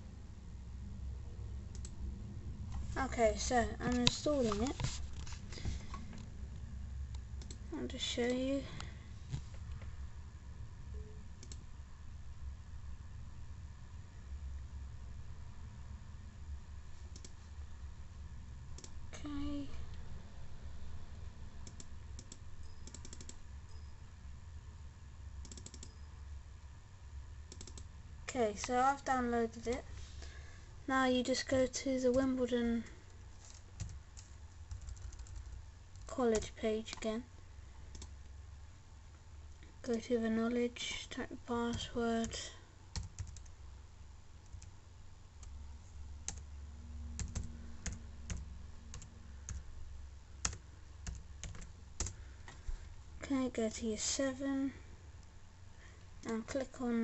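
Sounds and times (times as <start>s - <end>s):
low steady hum: 0.0s - 57.0s
keyboard keys clicking: 21.6s - 23.4s, 25.4s - 26.0s, 27.5s - 27.9s, 33.5s - 37.0s, 43.0s - 43.5s, 47.2s - 49.6s, 50.4s - 52.2s.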